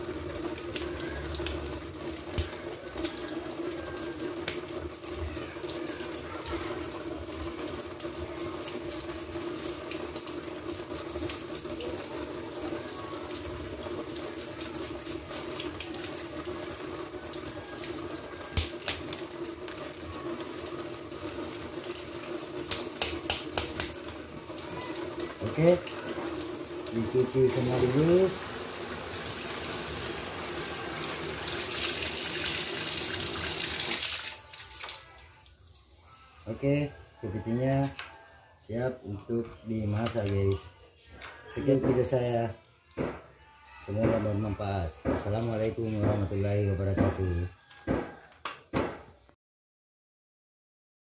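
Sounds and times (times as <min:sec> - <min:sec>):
tap water running into basin: 0:00.0 - 0:36.1.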